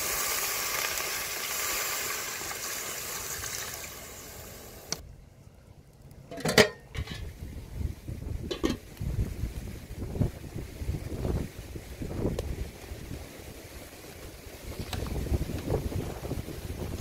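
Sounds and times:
water pouring into metal pot: 0:00.0 - 0:05.0
metal pot lid clanking: 0:06.3 - 0:07.3, 0:08.5 - 0:08.8.

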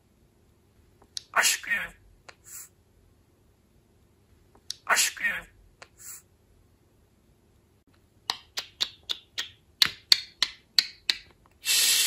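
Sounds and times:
budgerigar hiss: 0:11.6 - 0:12.0.

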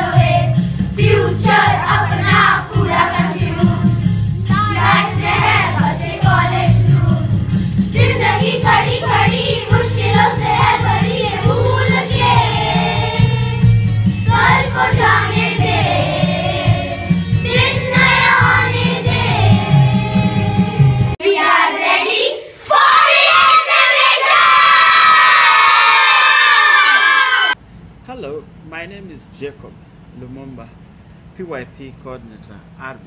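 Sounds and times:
children singing: 0:00.0 - 0:03.9, 0:04.5 - 0:07.3, 0:08.0 - 0:13.5, 0:14.3 - 0:25.6
musical accompaniment: 0:00.0 - 0:21.2
children cheering and shouting: 0:22.1 - 0:27.6.

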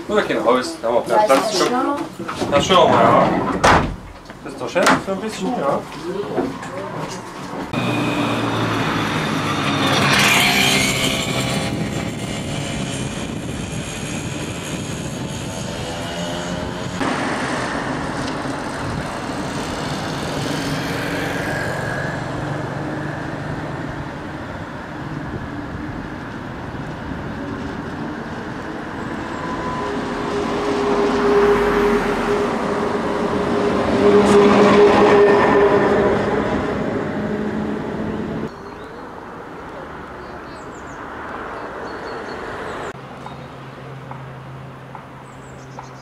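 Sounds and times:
road traffic passing: 0:00.0 - 0:46.0
tram approaching on track: 0:04.3 - 0:13.8, 0:14.7 - 0:41.6
tram motors whining: 0:06.6 - 0:38.5
loud rushing noise: 0:07.6 - 0:38.5.

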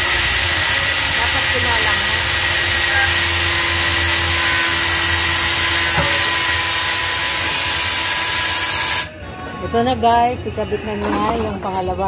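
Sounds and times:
arc welding hiss: 0:00.0 - 0:09.1.

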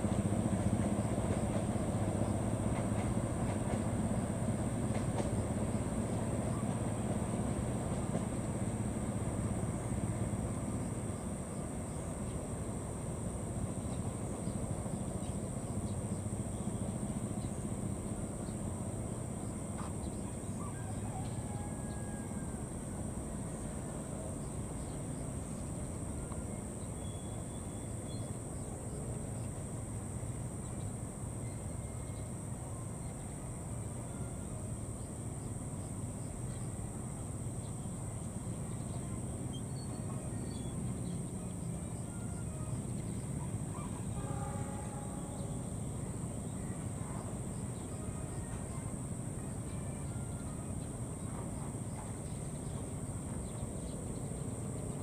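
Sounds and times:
insects droning: 0:00.0 - 0:55.0.

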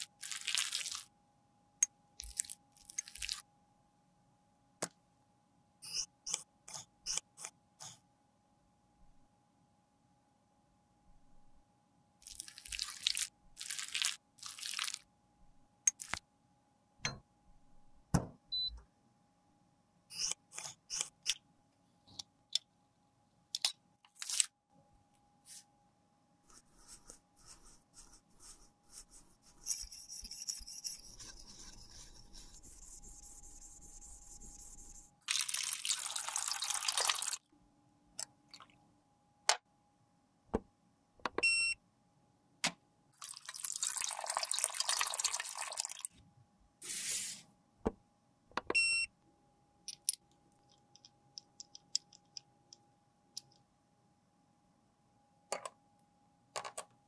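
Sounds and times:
tools scraping lipstick: 0:29.4 - 0:32.5.

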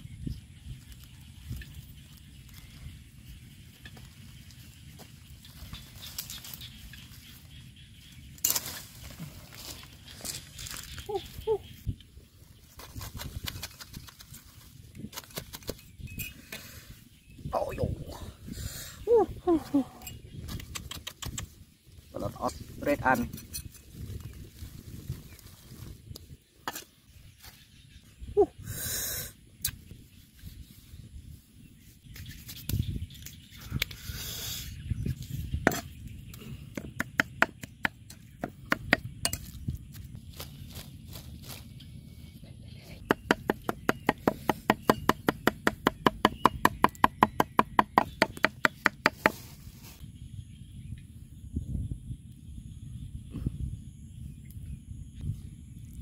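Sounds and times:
tree branches rustling: 0:00.8 - 0:13.3, 0:23.8 - 0:27.7, 0:40.2 - 0:42.2
cleaver chopping on wooden block: 0:36.7 - 0:39.1, 0:43.0 - 0:49.4.

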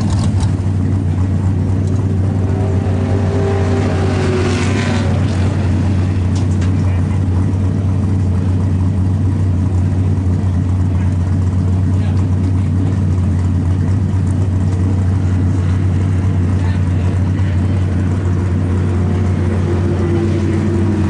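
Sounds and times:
car engine idling: 0:00.0 - 0:21.0
car engine passing: 0:01.9 - 0:07.5, 0:15.3 - 0:21.0.

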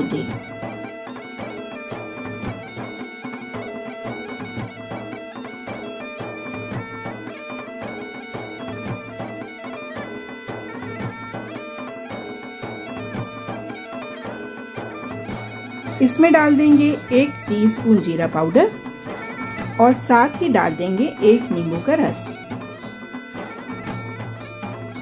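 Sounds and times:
wind instrument melody: 0:00.0 - 0:25.0.

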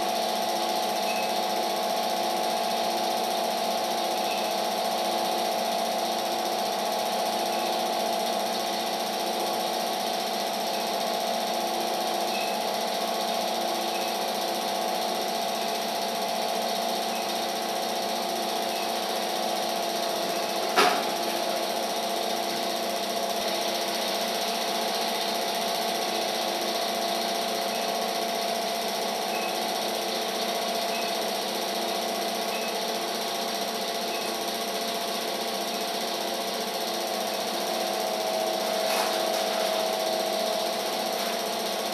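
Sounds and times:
film projector whirring: 0:00.0 - 0:41.9.

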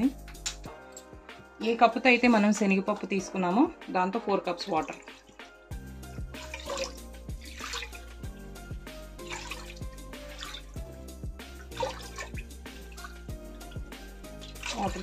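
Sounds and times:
background music with steady beat: 0:00.0 - 0:15.0
water splashing into a pot: 0:04.6 - 0:10.8, 0:11.4 - 0:15.0.

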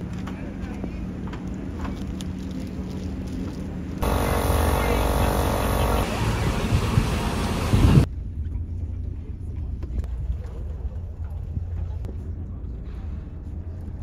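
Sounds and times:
low engine hum: 0:03.6 - 0:14.0
power tool on metal: 0:04.0 - 0:08.0
boat engine: 0:04.0 - 0:08.1
wind and rushing water: 0:06.1 - 0:08.1.

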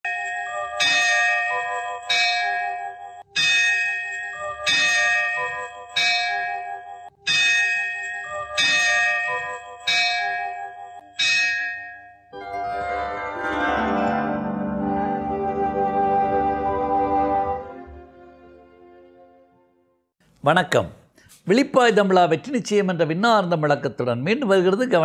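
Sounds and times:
bell ringing: 0:00.0 - 0:14.8
piano-like music: 0:12.4 - 0:19.6.

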